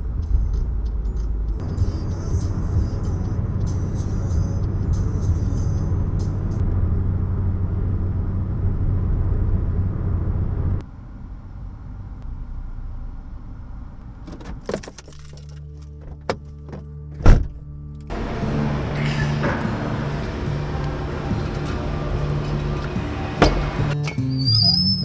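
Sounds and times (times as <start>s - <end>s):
road and engine noise in cabin: 0.0s - 25.0s
loud thump: 17.2s - 17.6s.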